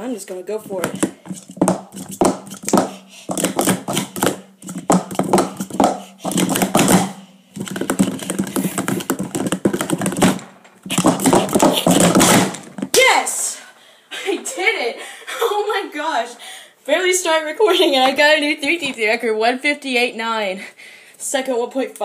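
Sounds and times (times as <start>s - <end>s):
plastic cups clacking: 0.6s - 12.9s.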